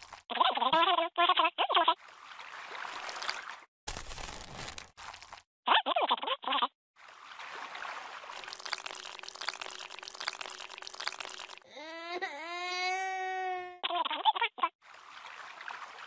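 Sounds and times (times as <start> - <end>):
water splashing and trickling: 0.0 - 0.3, 1.9 - 5.5, 7.0 - 11.8, 14.8 - 16.0
squeaky cartoon voice: 0.3 - 2.0, 5.7 - 6.7, 12.8 - 14.8.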